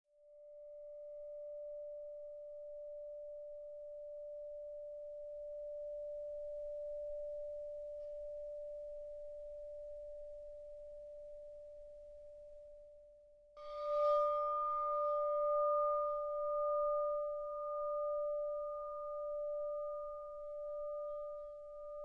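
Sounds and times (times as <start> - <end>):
pure tone held steadily: 0.1 - 22.0.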